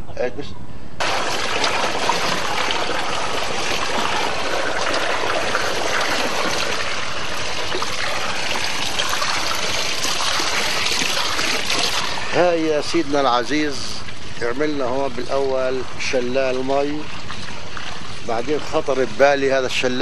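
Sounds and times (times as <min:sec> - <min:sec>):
water splashing over waterfall: 0:01.0 - 0:20.0.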